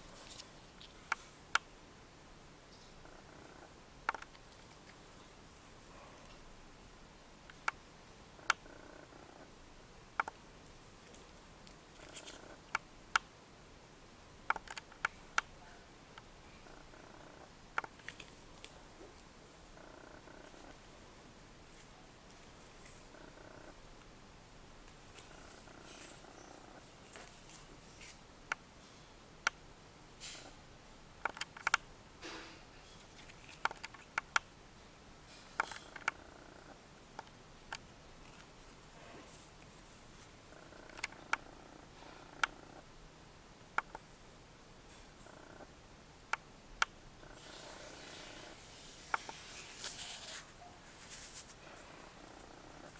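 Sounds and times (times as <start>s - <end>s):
paper cards rustling: 0.0s - 1.3s, 11.0s - 12.6s, 17.9s - 18.8s, 33.0s - 34.1s, 49.2s - 51.7s
soft rustles of cards: 0.0s - 1.6s, 4.2s - 6.5s, 10.4s - 12.9s, 17.8s - 21.0s, 21.6s - 24.1s, 24.8s - 29.1s, 32.8s - 34.2s, 37.8s - 42.8s, 47.2s - 52.9s
faint background hiss: 0.0s - 52.9s.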